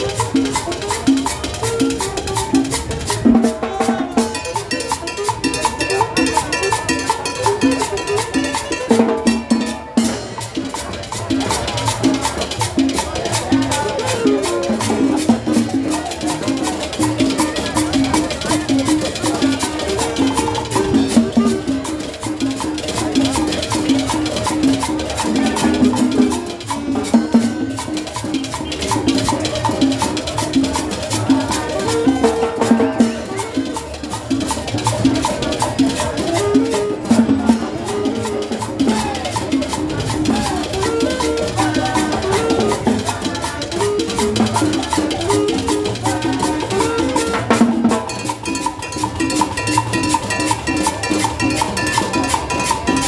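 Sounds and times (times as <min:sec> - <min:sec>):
double bass: 0:00.0 - 0:53.0
drums and cymbal: 0:00.0 - 0:53.0
street band playing latin music: 0:00.0 - 0:53.0
saxophone: 0:13.8 - 0:16.4, 0:17.0 - 0:23.5, 0:31.5 - 0:34.5, 0:35.7 - 0:49.0.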